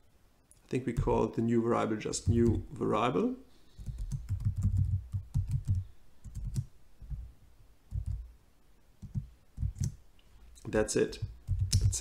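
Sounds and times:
computer keyboard typing: 3.8 - 6.7, 7.9 - 8.3, 9.0 - 10.0, 11.2 - 12.0.

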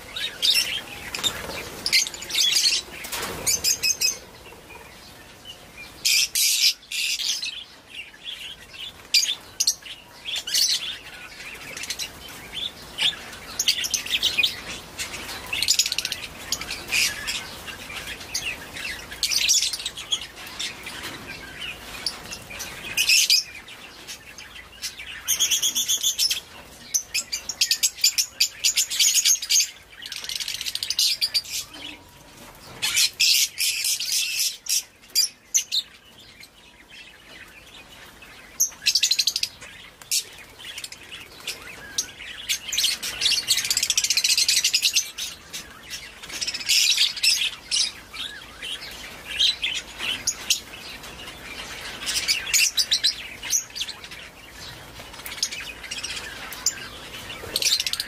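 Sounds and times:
small birds chirping and chattering: 0.0 - 58.0.

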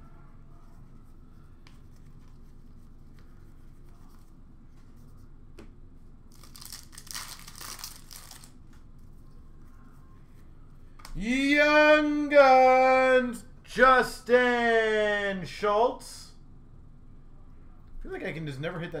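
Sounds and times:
wrapper tearing and crinkling: 6.3 - 8.6.

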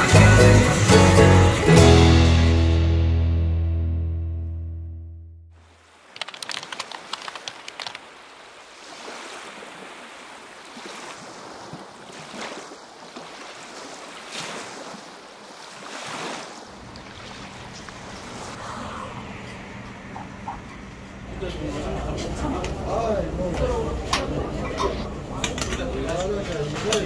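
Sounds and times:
music: 0.0 - 5.4
crackling: 5.6 - 8.6
sea waves breaking on shore: 5.6 - 20.4.

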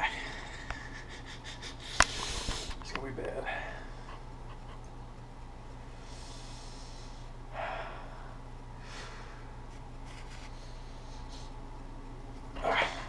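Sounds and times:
low hum: 0.0 - 13.0
man breathing through nose: 1.8 - 2.8, 6.0 - 9.6.

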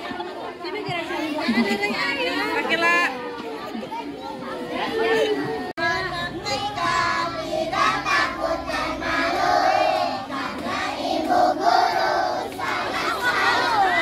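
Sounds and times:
children singing: 5.4 - 14.0.

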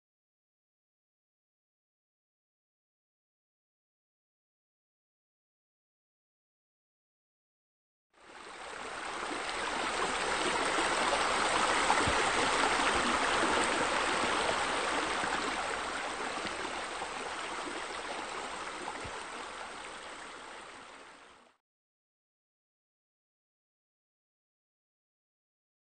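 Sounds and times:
waterfall spilling into pool: 8.4 - 20.8.

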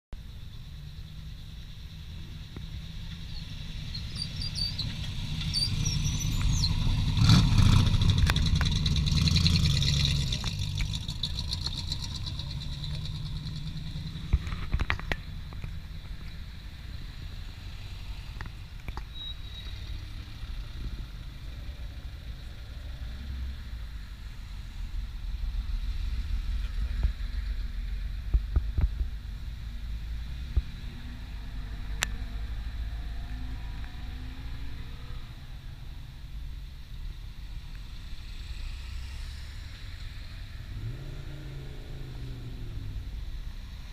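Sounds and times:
sports cars passing: 2.3 - 28.4, 29.6 - 43.9
loud car engine passing by: 3.3 - 14.8, 37.5 - 43.9.

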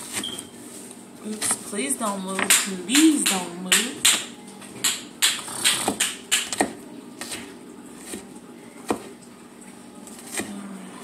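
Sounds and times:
knife chopping on wooden board: 2.4 - 8.2.

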